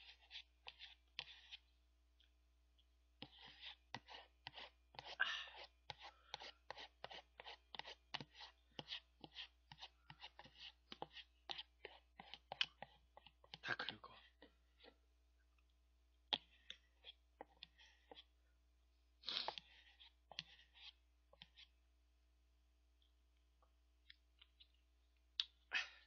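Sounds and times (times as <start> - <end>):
plastic spoon scraping paper tub: 19.2 - 21.7.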